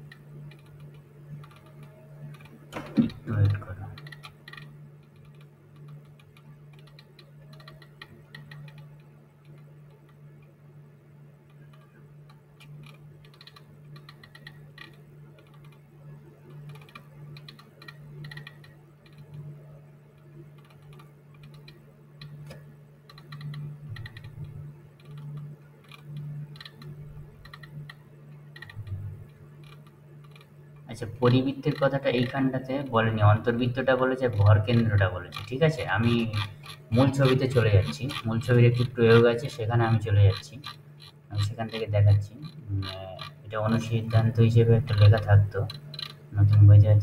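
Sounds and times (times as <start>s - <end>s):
mouse scroll wheel clicks: 0.0s - 10.2s, 12.6s - 15.8s, 16.5s - 19.5s, 20.6s - 32.6s, 33.4s - 47.0s
steady low hum: 0.0s - 47.0s.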